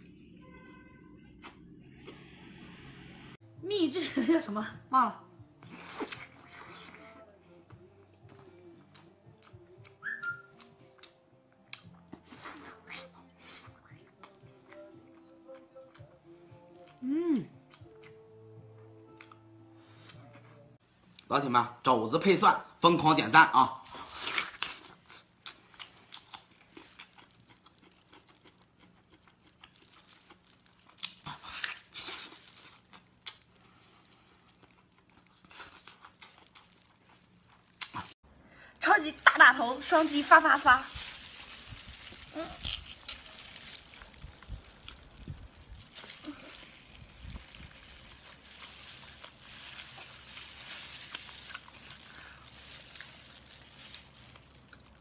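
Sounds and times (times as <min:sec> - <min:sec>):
chewing and biting meat: 0:24.0 - 0:38.2
wet chewing and mouth clicks: 0:24.2 - 0:38.2, 0:41.0 - 0:55.0.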